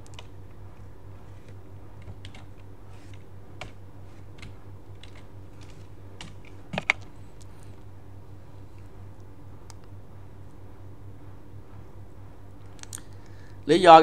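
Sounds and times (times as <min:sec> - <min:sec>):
low steady hum: 0:00.0 - 0:14.0
keyboard key presses: 0:02.0 - 0:02.7, 0:04.4 - 0:07.1.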